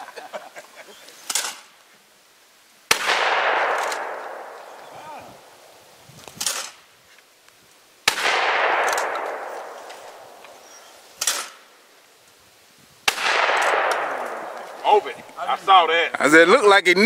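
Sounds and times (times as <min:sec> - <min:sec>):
shotgun shots echoing: 0:02.9 - 0:05.5, 0:08.0 - 0:11.7, 0:13.0 - 0:15.2.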